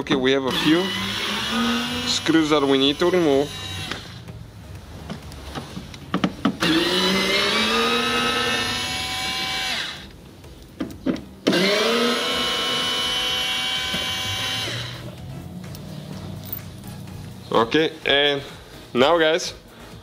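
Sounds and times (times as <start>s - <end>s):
electric screwdriver whining: 0.5s - 4.2s, 6.6s - 10.1s, 11.4s - 15.1s.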